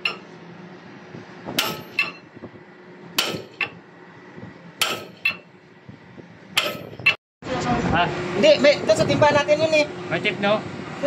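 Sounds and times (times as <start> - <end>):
sledgehammer striking steel bar: 1.5 - 2.3, 3.2 - 3.8, 4.8 - 5.5, 6.6 - 7.2.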